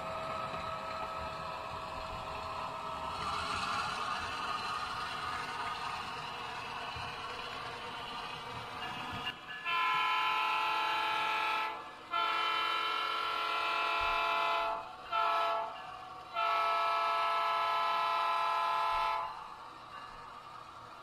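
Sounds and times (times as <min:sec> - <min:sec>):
model train diesel horn: 0:09.6 - 0:19.6.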